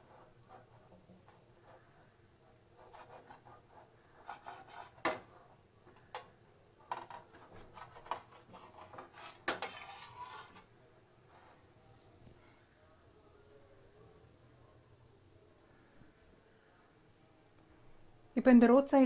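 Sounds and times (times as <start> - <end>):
blade rubbing metal plate: 7.8 - 10.7.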